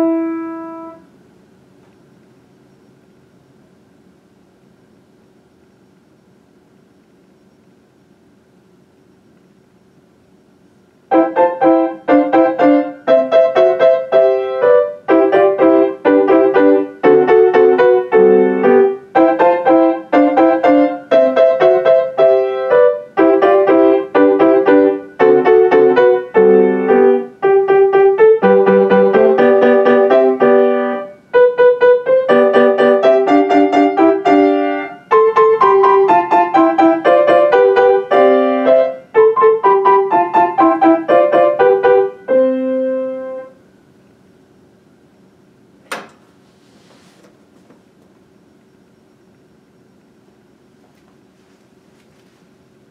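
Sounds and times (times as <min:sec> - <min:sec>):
solo grand piano piece: 0:00.0 - 0:01.2, 0:11.1 - 0:43.6.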